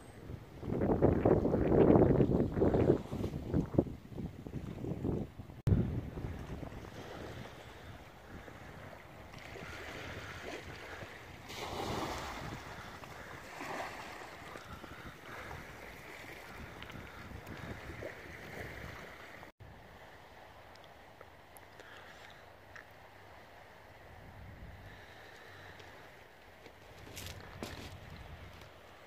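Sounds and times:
wind buffeting microphone: 0.0s - 19.9s, 24.0s - 25.9s, 26.8s - 29.0s
small waves on stony shore: 6.1s - 21.0s.

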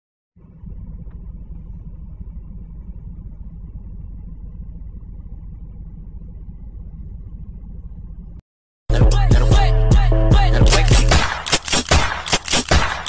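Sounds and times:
car cabin rumble: 0.4s - 8.4s.

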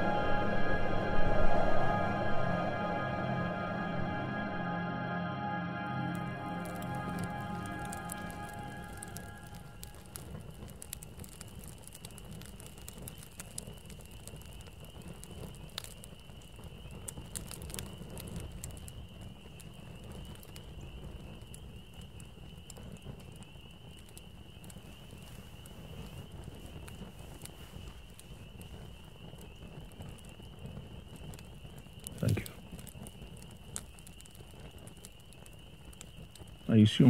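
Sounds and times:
steady high trill: 0.0s - 10.2s
campfire crackling and popping: 6.0s - 37.0s.

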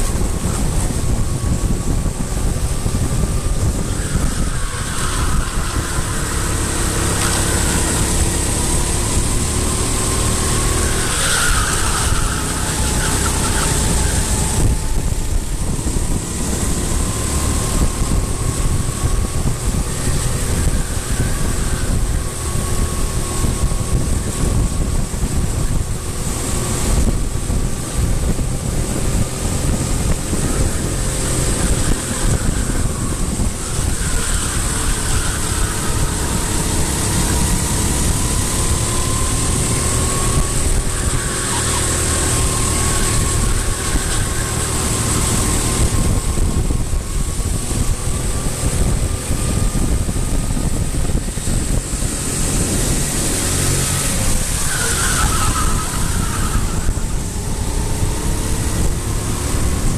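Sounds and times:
engine running: 0.0s - 59.9s
wind rumble on microphone: 0.0s - 59.9s.

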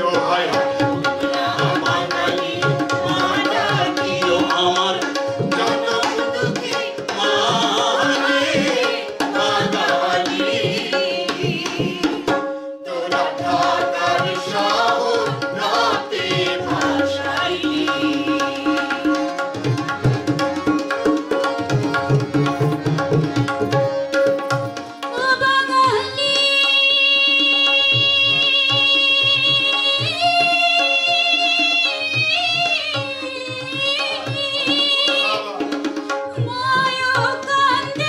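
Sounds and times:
group singing: 0.0s - 19.6s
harmonium: 0.0s - 38.0s
tabla beat: 0.0s - 38.0s.

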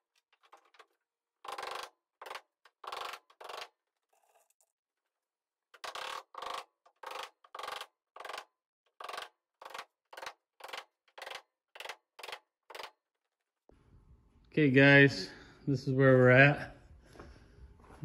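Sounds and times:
hammer nailing plywood: 1.4s - 3.8s, 5.8s - 13.0s.

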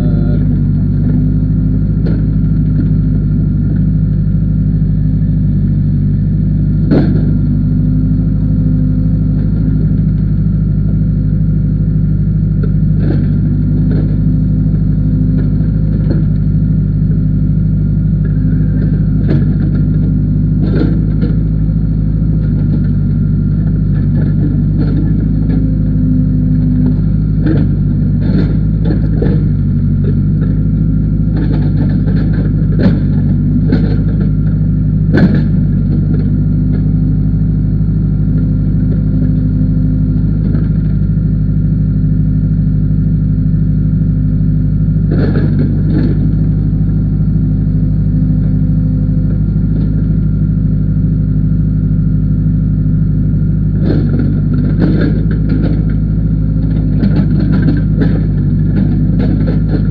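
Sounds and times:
diesel engine running: 0.0s - 59.9s
digging bucket clanks: 53.8s - 59.9s.

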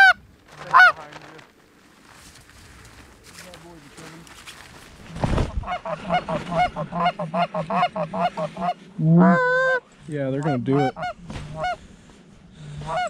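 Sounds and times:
goose call clucks and moan: 0.0s - 1.0s, 5.6s - 9.8s, 10.4s - 11.8s, 12.6s - 13.0s.

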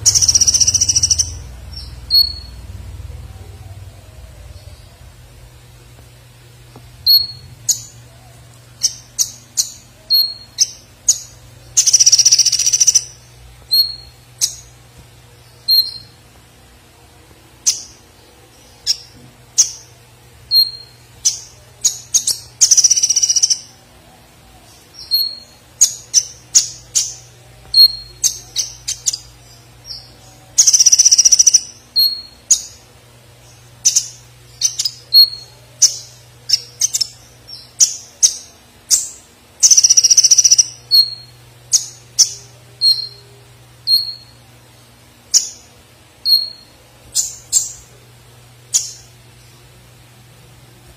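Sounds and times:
bird chirping and trilling: 0.0s - 5.3s, 7.0s - 14.8s, 15.4s - 16.2s, 17.6s - 23.8s, 24.6s - 44.4s, 45.3s - 48.0s, 48.7s - 49.6s
steady low hum: 0.0s - 50.9s.

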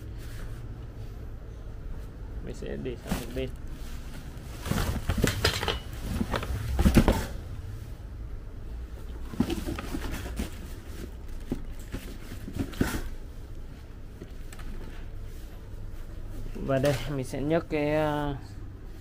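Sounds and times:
steady low hum: 0.0s - 19.0s
motorcycle parts knocking and clattering: 4.6s - 7.2s, 9.0s - 13.2s.

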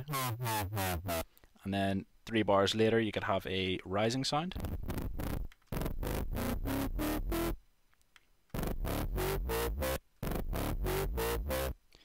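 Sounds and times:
distorted pulsing synth bass: 0.0s - 1.2s, 4.6s - 7.6s, 8.6s - 11.8s.

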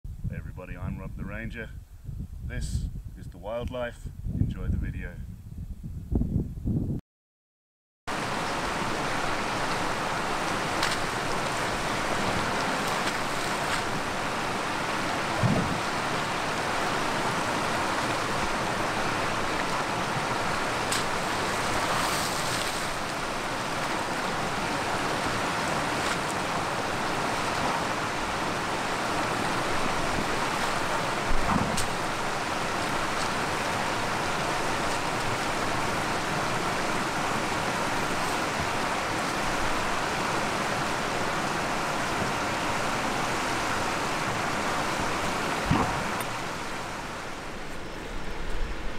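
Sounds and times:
river water flowing over rocks: 8.1s - 48.9s
low thumps: 15.3s - 15.9s, 45.6s - 46.4s.

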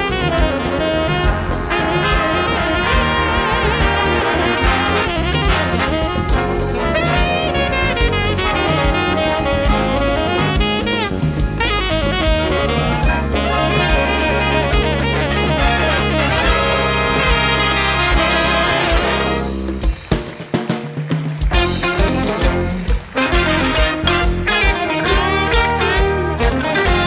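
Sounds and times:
tenor saxophone solo: 0.0s - 19.8s, 21.5s - 27.0s
trumpets and trombones: 0.0s - 19.8s, 21.4s - 27.0s
big band playing jazz: 0.0s - 27.0s.

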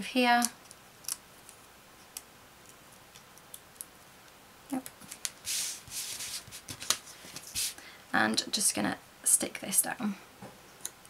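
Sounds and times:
paper and cardstock rustling: 4.8s - 7.8s.

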